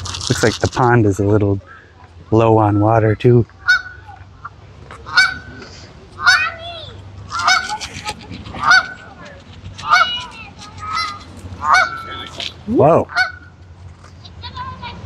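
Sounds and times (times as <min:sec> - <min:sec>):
geese honking: 0:02.6 - 0:13.6.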